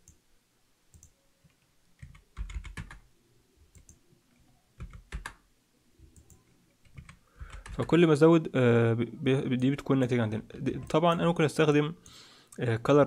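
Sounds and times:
keyboard keys clicking: 2.0 - 3.0, 4.8 - 5.4, 6.0 - 8.0.

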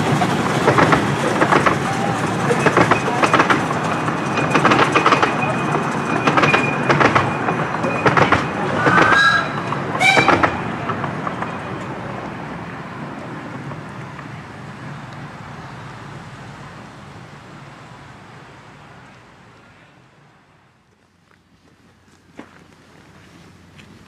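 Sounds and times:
wheel squeals: 0.0 - 11.9
train coaches rolling on track: 0.0 - 24.0.

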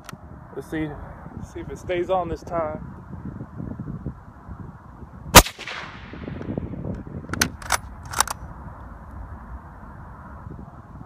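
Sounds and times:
suppressed rifle shot: 5.3 - 6.6
quiet rifle bolt clicks: 7.3 - 8.4.

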